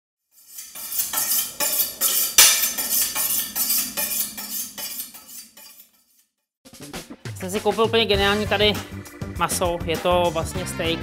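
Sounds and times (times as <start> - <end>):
knife scraping on honing steel: 0.3 - 6.3.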